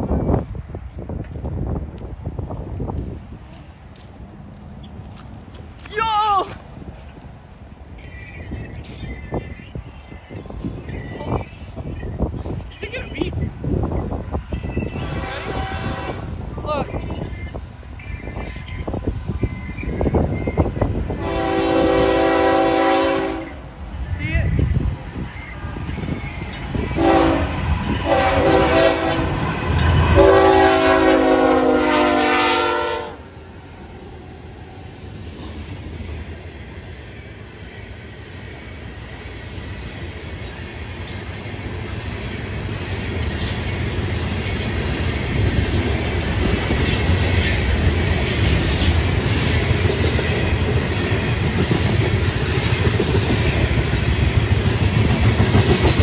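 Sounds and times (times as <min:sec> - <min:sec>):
locomotive air horn blowing: 0:15.0 - 0:16.3, 0:21.2 - 0:23.6, 0:27.0 - 0:29.4, 0:30.0 - 0:33.3.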